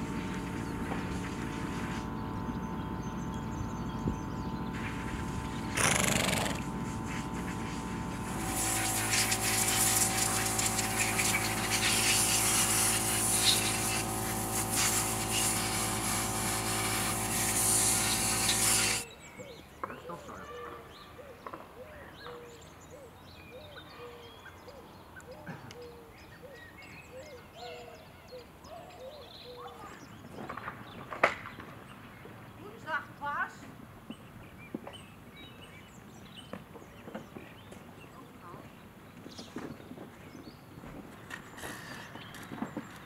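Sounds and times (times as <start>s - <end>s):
machine motor humming: 0.0s - 19.0s.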